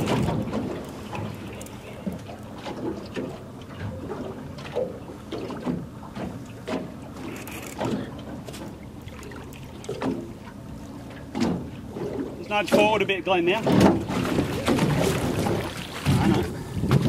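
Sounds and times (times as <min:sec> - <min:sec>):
water slapping against boat: 0:00.0 - 0:17.0
wind on microphone: 0:14.2 - 0:17.0.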